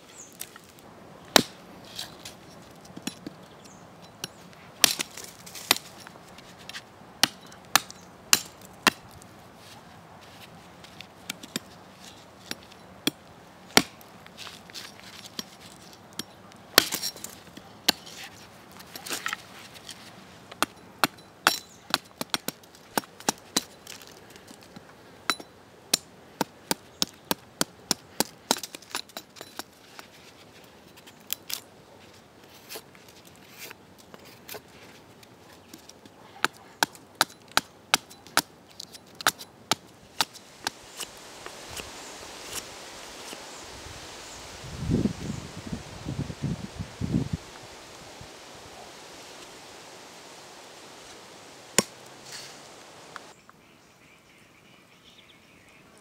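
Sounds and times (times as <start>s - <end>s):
machete chopping wood: 1.3s - 1.6s, 4.3s - 5.9s, 7.2s - 9.1s, 12.4s - 14.0s, 16.8s - 17.1s, 51.8s - 52.0s.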